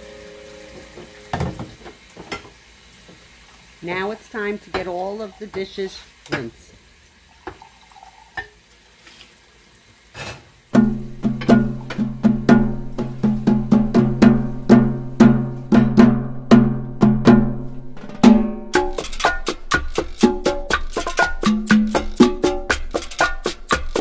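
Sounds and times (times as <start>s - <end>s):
upbeat percussive music: 10.7s - 24.0s.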